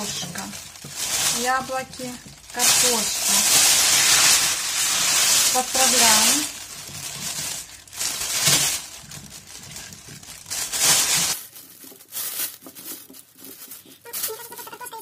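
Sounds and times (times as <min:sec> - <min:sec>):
plastic roasting sleeve crinkling: 0:00.0 - 0:15.0.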